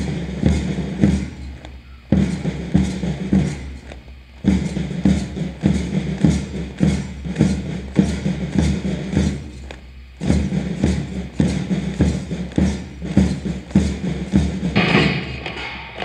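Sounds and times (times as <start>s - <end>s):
marching band drums: 0.0s - 16.0s.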